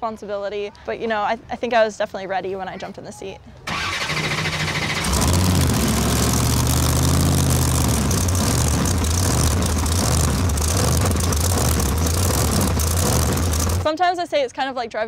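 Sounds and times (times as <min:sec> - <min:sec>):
truck engine revving: 0:03.7 - 0:13.9.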